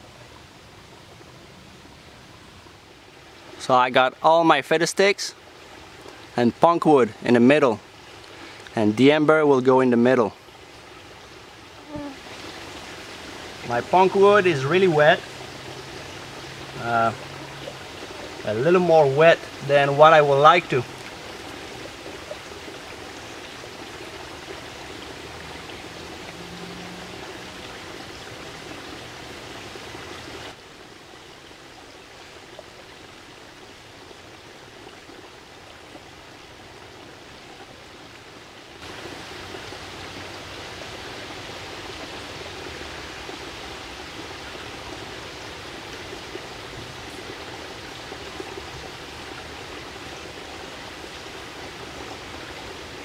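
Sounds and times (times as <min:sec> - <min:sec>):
stream flowing: 0:00.0 - 0:53.0.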